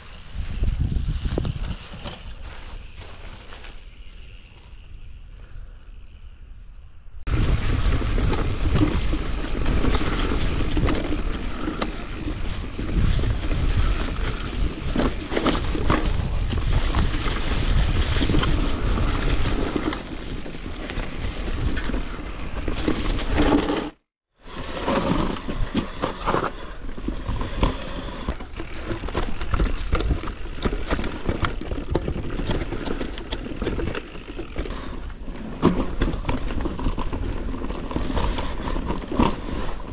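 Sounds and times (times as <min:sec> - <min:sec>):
wind rumble on microphone: 0:00.0 - 0:03.0, 0:07.2 - 0:23.2
bike rattling: 0:00.0 - 0:39.9.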